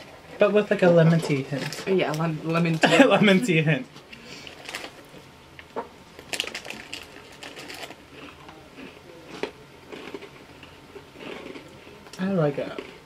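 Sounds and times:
plastic bag crinkling: 4.4s - 5.0s, 6.2s - 10.3s
cookies being crunched: 4.4s - 5.1s, 6.2s - 13.0s.

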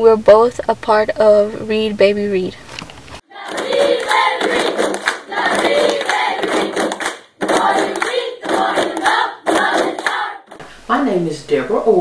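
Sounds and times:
group of voices chanting: 3.3s - 10.6s.

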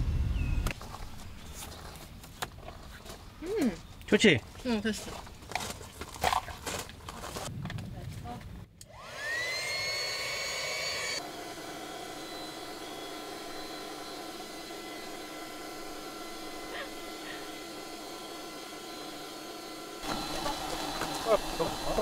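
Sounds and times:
small electric motor whirring: 8.8s - 22.0s.

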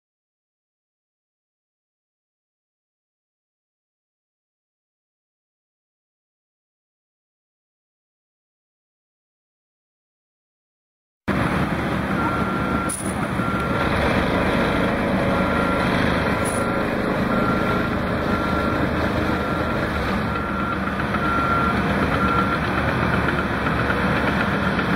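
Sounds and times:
diesel engine running: 11.3s - 24.9s
backup alarm beeping: 12.2s - 13.9s, 15.3s - 22.7s.

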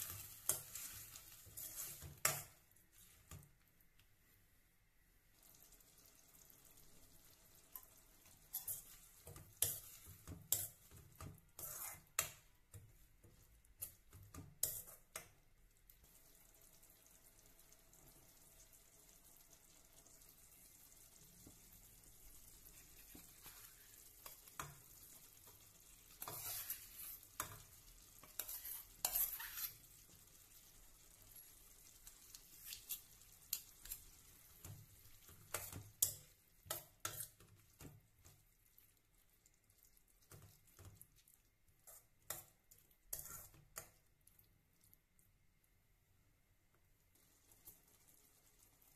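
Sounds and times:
spatula scraping pan: 0.0s - 3.4s, 7.8s - 12.4s, 13.3s - 15.2s, 22.6s - 30.3s, 32.1s - 37.6s, 41.8s - 44.0s
faint frying sizzle: 0.0s - 48.9s.

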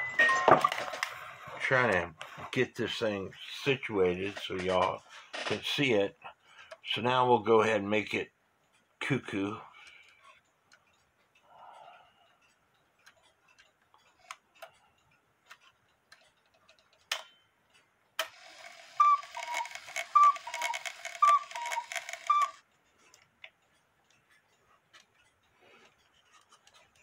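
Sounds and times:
clock ticking: 0.0s - 27.0s
clock mechanism clicks: 0.2s - 27.0s
cuckoo call whistle: 18.9s - 22.6s.

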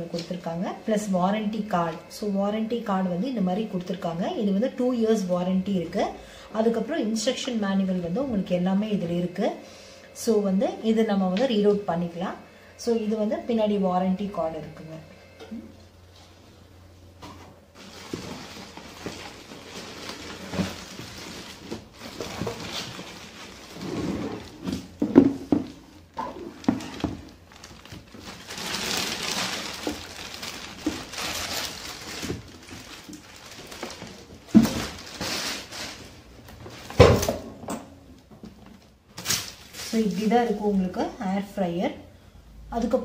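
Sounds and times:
plastic bag crinkling: 17.8s - 24.6s, 26.0s - 36.9s, 39.1s - 40.6s.

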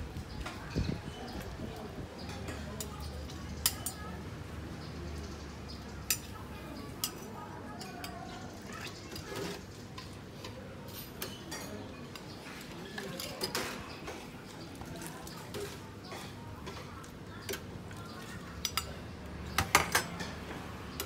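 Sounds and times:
steady background noise: 0.0s - 21.0s.

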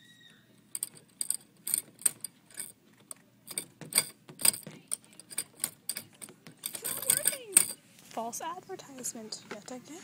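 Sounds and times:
mechanical clicks and rattles: 0.7s - 7.8s.

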